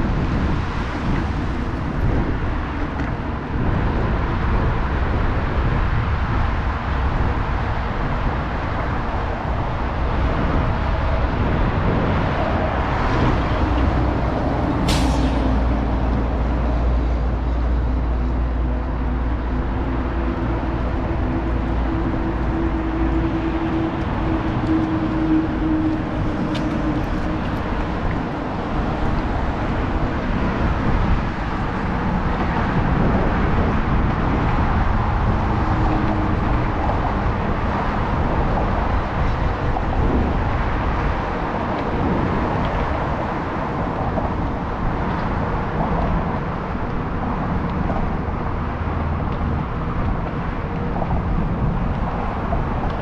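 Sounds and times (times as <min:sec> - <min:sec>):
heavy vehicle engine hum: 0:00.0 - 0:53.0
road traffic passing: 0:00.0 - 0:53.0
short sharp hiss: 0:14.9 - 0:15.5.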